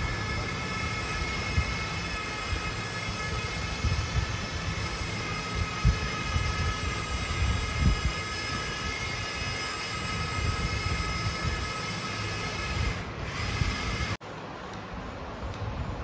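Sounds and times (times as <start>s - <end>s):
electric motor gear whine: 0.0s - 14.2s.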